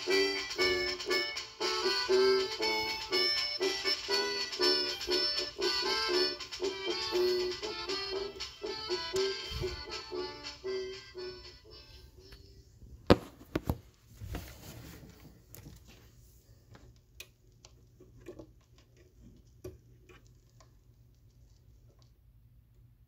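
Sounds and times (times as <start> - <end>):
accordion band music: 0.0 - 12.5.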